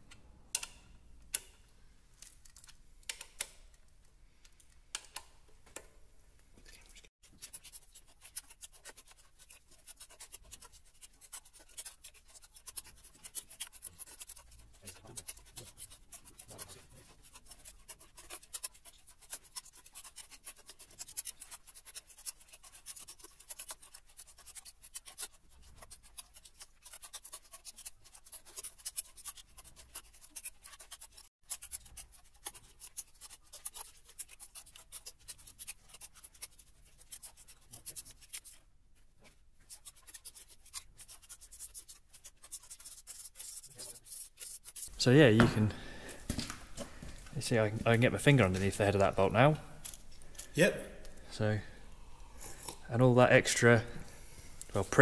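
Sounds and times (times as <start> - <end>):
hand tools clicking and scraping: 7.2 - 38.6, 39.6 - 51.7.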